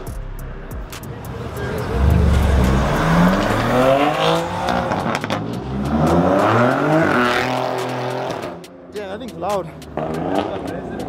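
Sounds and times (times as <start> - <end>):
car engine accelerating: 0.0 - 8.7.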